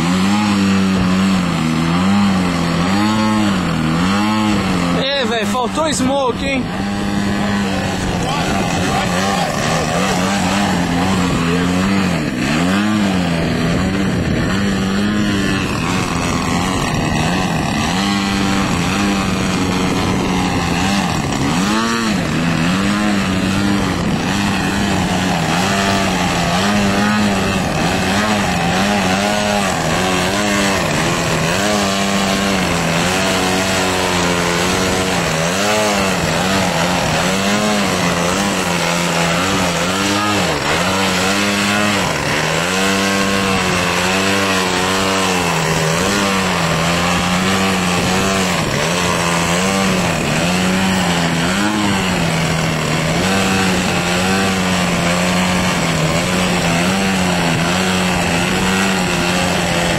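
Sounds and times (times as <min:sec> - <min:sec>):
model plane engine wavering pitch: 0:00.0 - 0:42.5.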